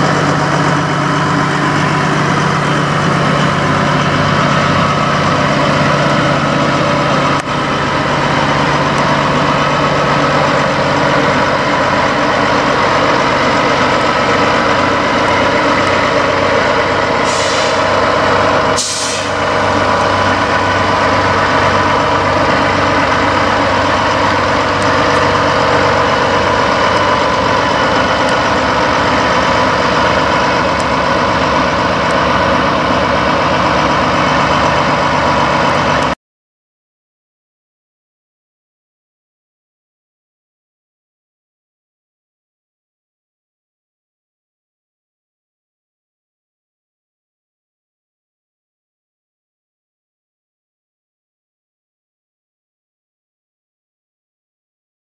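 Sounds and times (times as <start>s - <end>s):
diesel truck engine idling: 0.0s - 36.2s
air hiss: 17.2s - 17.9s, 18.8s - 19.4s.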